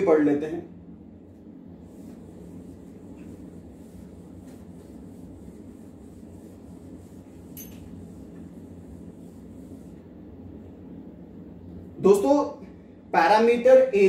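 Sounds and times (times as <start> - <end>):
low room hum: 0.0 - 14.0
cloth rubbing on whiteboard: 1.2 - 10.4.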